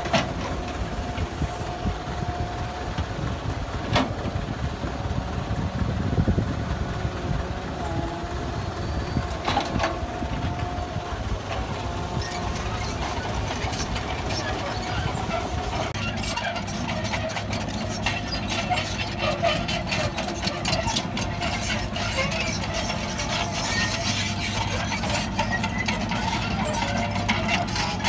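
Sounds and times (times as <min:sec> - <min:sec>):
diesel engines droning: 0:00.0 - 0:28.0
metallic clanks and squeaks: 0:08.1 - 0:28.0.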